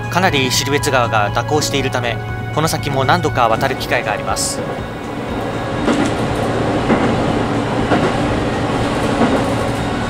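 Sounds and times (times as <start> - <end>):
diesel railcar engine drone: 0.0 - 10.0
wheels clacking over rail joints: 3.5 - 10.0.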